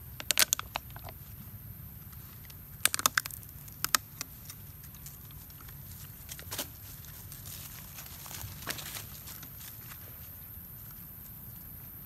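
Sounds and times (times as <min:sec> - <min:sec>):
plastic bottle crackling: 0:02.8 - 0:04.6.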